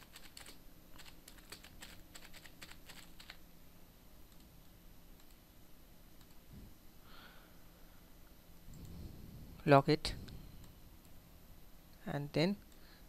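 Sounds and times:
typing on a keyboard: 0:00.0 - 0:03.4.

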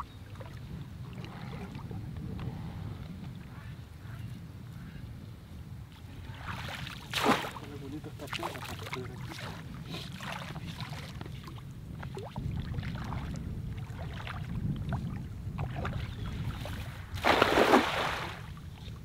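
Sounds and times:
wind on microphone: 0:00.0 - 0:19.0
small splashes of wading: 0:06.2 - 0:18.9
cast net splashing on water: 0:06.5 - 0:07.7, 0:17.2 - 0:18.4.

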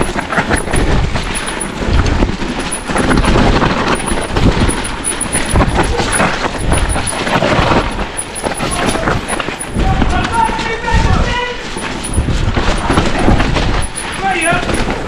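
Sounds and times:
bike rattling and knocking: 0:00.0 - 0:15.0.

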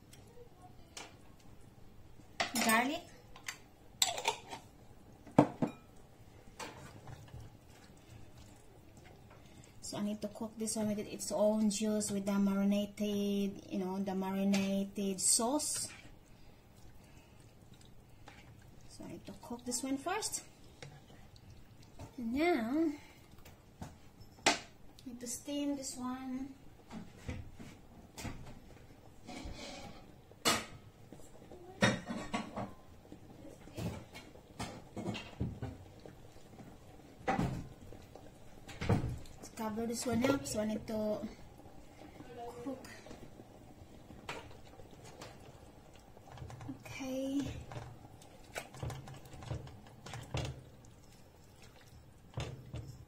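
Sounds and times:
cookware and utensils clinking: 0:02.3 - 0:08.0, 0:23.9 - 0:24.8, 0:29.1 - 0:31.0, 0:31.6 - 0:41.4.

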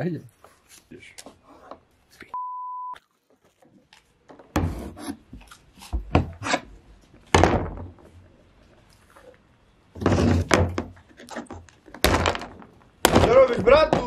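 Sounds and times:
censor bleep: 0:02.4 - 0:03.0.

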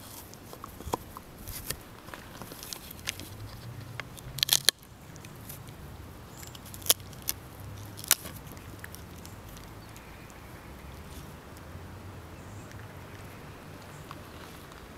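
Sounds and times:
dog teeth cracking on wood: 0:00.0 - 0:10.4.

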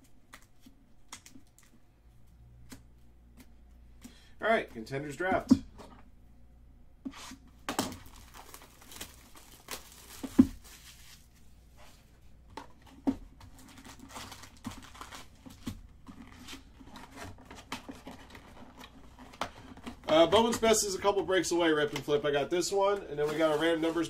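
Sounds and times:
wrapping tearing and crinkling: 0:07.7 - 0:11.3, 0:13.3 - 0:21.0, 0:23.2 - 0:24.0.

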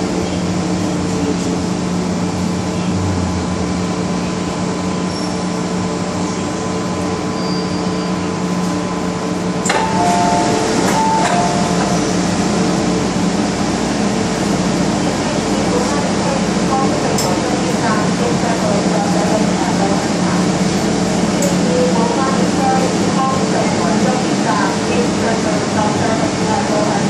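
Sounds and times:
train motors humming: 0:00.0 - 0:07.4, 0:08.1 - 0:27.0
train doors sliding open: 0:09.5 - 0:13.4
two-tone door chime: 0:09.7 - 0:12.2.

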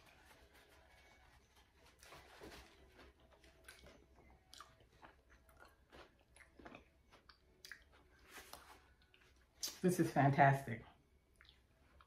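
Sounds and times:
person chewing crunchy food: 0:03.0 - 0:09.5, 0:11.3 - 0:12.0.

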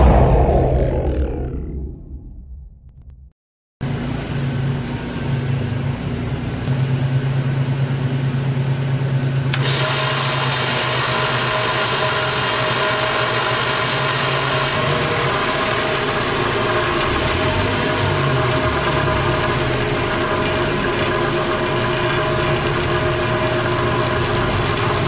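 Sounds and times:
whirring with high whine: 0:00.0 - 0:03.4, 0:04.4 - 0:25.0
wood lathe motor hum: 0:09.5 - 0:25.0.

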